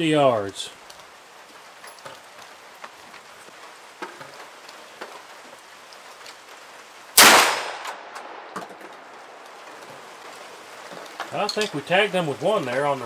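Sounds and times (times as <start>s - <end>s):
shotgun shot: 7.2s - 8.5s.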